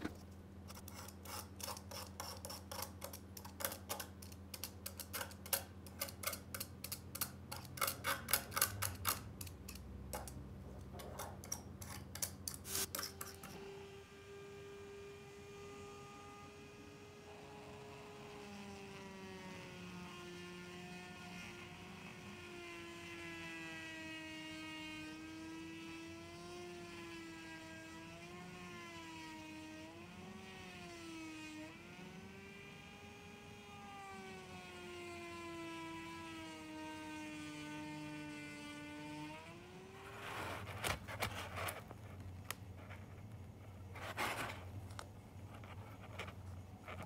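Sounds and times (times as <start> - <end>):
rotary tool sanding metal: 0.0 - 13.8.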